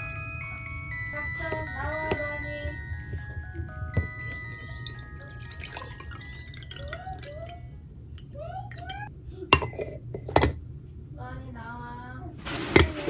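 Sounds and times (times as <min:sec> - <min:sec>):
liquid drops plipping: 0:04.5 - 0:09.1.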